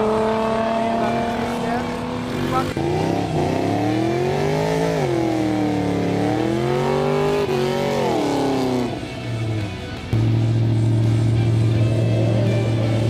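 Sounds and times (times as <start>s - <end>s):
engine revving hard: 0.0s - 9.0s.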